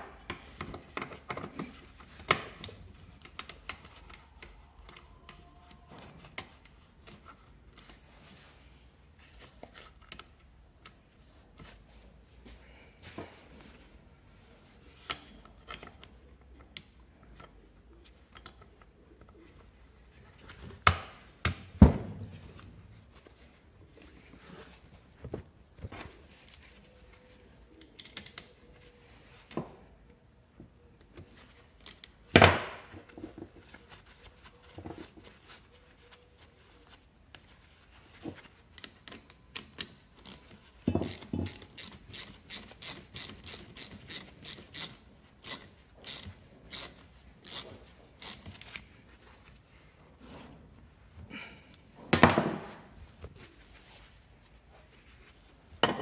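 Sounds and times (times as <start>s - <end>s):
ratchet wrench clicking: 41.1s - 47.6s, 48.2s - 48.4s.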